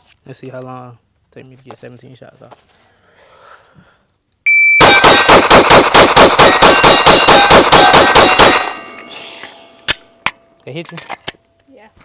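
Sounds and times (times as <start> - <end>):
shot timer beep: 4.5 - 5.2
rapid pistol shots: 4.8 - 8.9.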